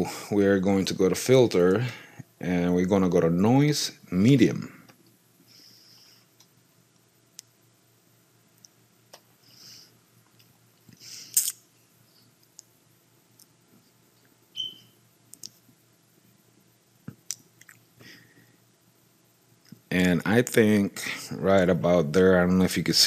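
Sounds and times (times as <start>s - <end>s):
faint low hum: 0.0s - 23.0s
soft hissing: 4.6s - 7.6s, 8.6s - 10.2s, 10.8s - 12.6s.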